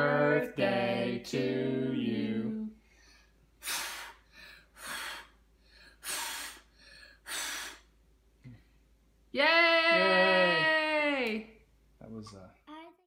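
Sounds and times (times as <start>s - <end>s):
short breaths: 2.8s - 8.8s
child blowing hard puffs: 3.6s - 8.0s.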